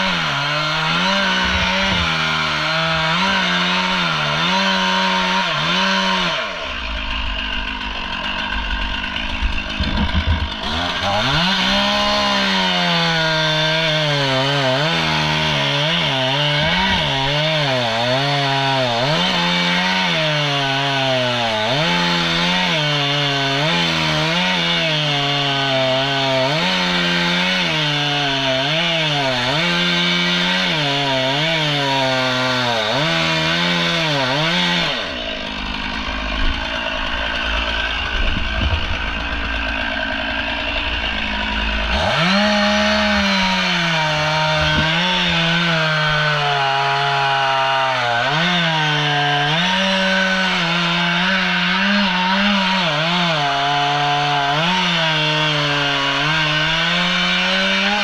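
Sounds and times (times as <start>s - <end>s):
chainsaw cutting wood: 0.0s - 58.0s
knocks and rumble: 1.3s - 3.0s, 8.4s - 11.2s, 37.4s - 39.9s, 44.5s - 45.5s.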